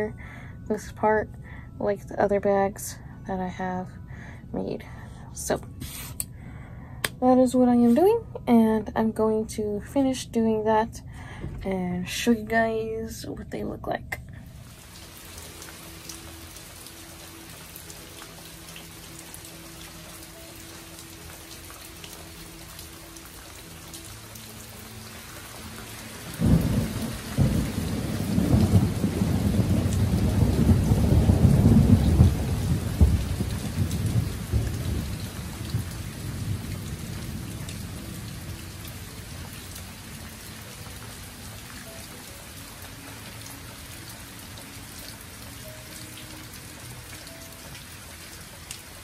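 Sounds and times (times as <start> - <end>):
steady rain: 14.4 - 49.0
thunder rumbling: 26.3 - 39.7.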